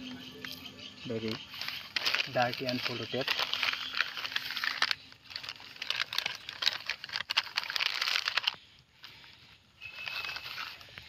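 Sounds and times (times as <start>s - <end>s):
plastic packaging crinkling: 1.2s - 11.0s.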